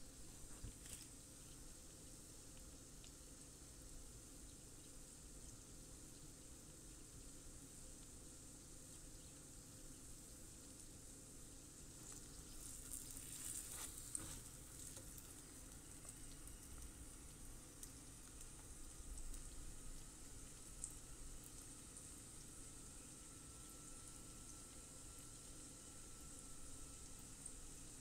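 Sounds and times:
food sizzling in oil: 0:11.8 - 0:28.0.

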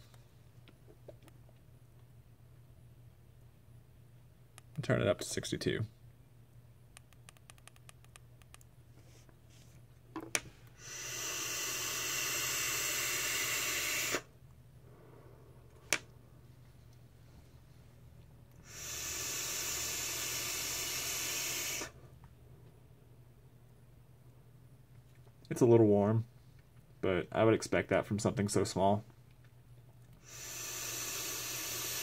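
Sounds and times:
airy hiss of vaping draw: 0:10.8 - 0:14.3, 0:18.6 - 0:22.0, 0:30.2 - 0:32.0.

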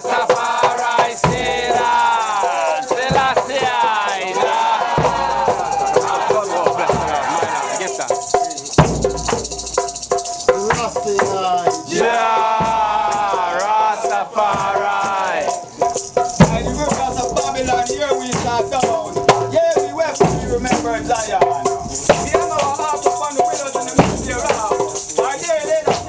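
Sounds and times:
group of voices chanting: 0:00.0 - 0:07.9, 0:11.9 - 0:15.9
rattles shaking: 0:00.0 - 0:26.0.

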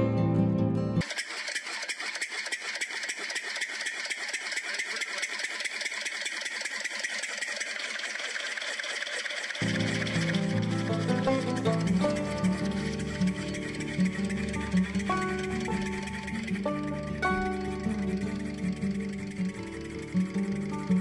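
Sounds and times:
music: 0:00.0 - 0:01.0, 0:09.6 - 0:21.0
fast even flywheel rattle: 0:01.0 - 0:21.0
model engine motor running: 0:01.0 - 0:21.0.

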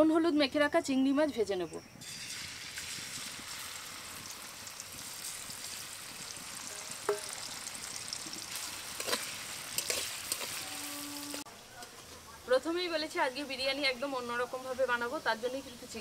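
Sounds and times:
prawns sizzling in hot oil: 0:02.0 - 0:11.5.

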